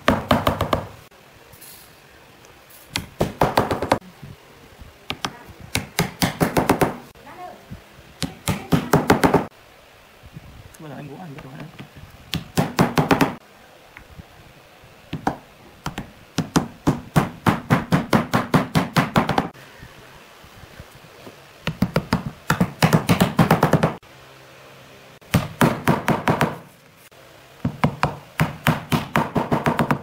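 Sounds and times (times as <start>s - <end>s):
mallet tapping wood: 5.1s - 7.0s, 15.1s - 19.5s, 27.6s - 30.0s.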